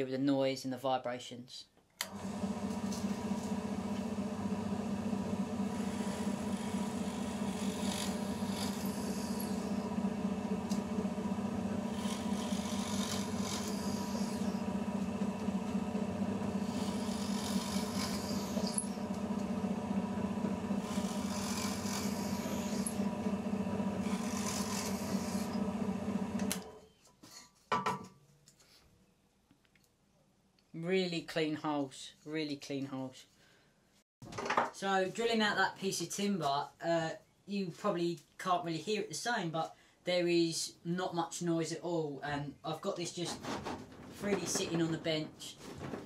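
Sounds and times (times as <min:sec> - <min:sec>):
drill boring into wood: 0:02.0 - 0:26.7
drill press motor hum: 0:02.0 - 0:26.8.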